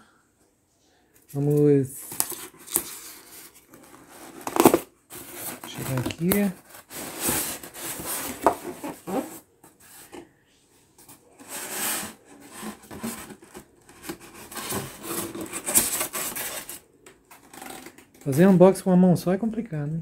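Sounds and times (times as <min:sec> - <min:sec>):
cardboard box rubbing and scraping: 0:03.9 - 0:09.5, 0:11.4 - 0:16.8.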